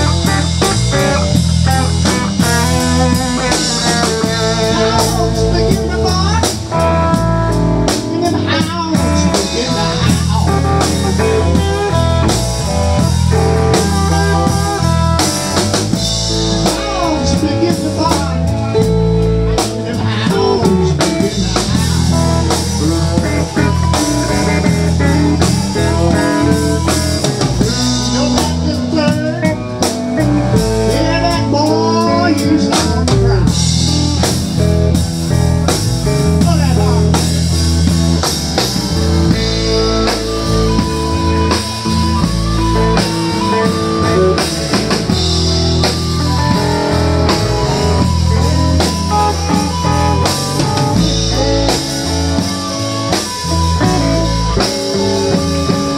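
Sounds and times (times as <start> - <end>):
electric blues band playing: 0.0 - 55.9
harmonica bending notes: 0.0 - 55.9.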